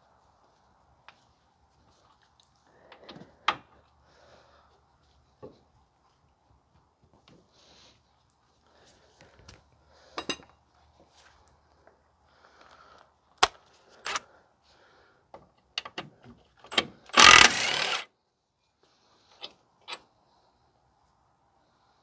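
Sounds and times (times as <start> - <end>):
power tool burst: 17.1 - 18.1.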